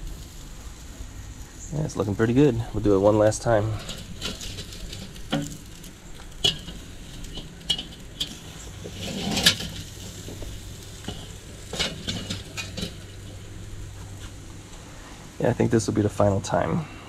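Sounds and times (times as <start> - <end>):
metal racks clinking on grate: 3.4 - 13.4.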